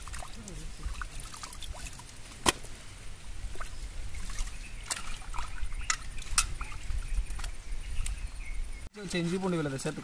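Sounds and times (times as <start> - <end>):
water splashing and dripping: 0.0 - 2.8, 3.4 - 8.2.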